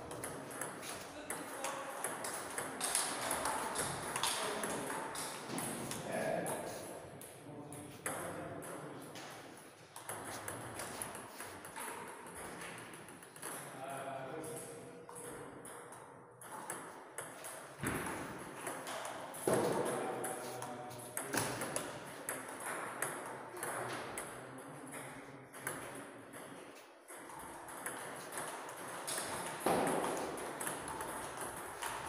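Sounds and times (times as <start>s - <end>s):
table tennis balls clicking: 0.0s - 6.0s, 9.9s - 13.6s, 27.1s - 32.0s.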